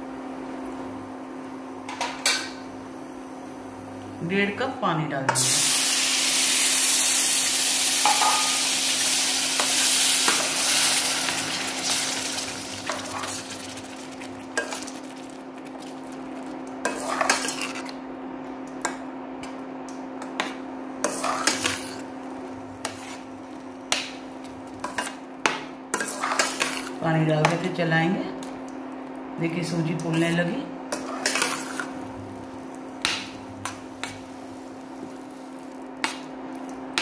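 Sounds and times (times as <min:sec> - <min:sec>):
steady hum: 0:00.0 - 0:37.0
water sizzling in hot pan: 0:05.4 - 0:16.1
spatula scraping a pan: 0:26.0 - 0:26.9.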